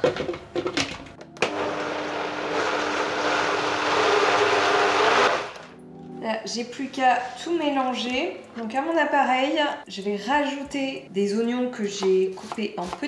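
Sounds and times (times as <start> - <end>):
blender motor humming: 1.4 - 5.6.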